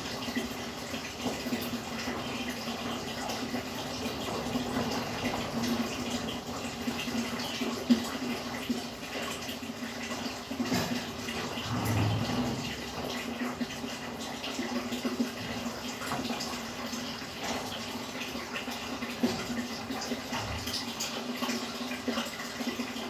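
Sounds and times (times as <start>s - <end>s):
water bubbling and trickling: 0.0s - 23.0s
aquarium pump hum: 10.7s - 14.2s.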